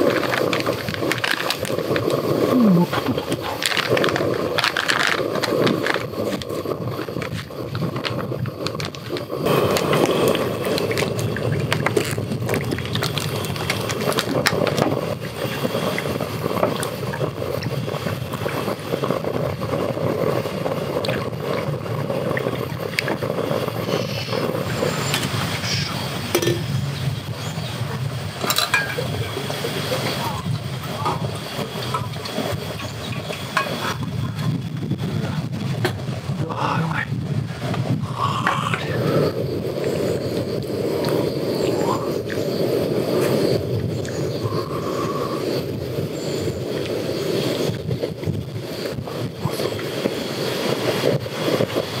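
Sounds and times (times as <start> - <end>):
pot of broth simmering: 0.0 - 25.4.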